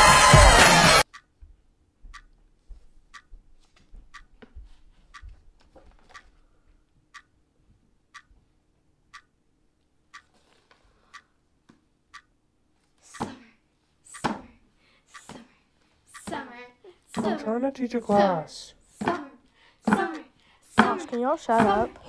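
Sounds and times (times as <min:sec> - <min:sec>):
clock ticking: 0:00.0 - 0:02.4, 0:03.0 - 0:05.5, 0:07.0 - 0:08.4, 0:09.1 - 0:09.4, 0:10.1 - 0:10.3, 0:11.1 - 0:11.3, 0:12.1 - 0:12.4, 0:14.1 - 0:15.5, 0:16.1 - 0:22.0.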